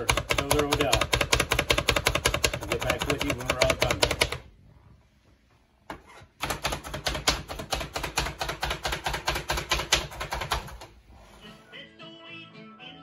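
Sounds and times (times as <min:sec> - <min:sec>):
plunger food chopper clacking: 0:00.0 - 0:04.3.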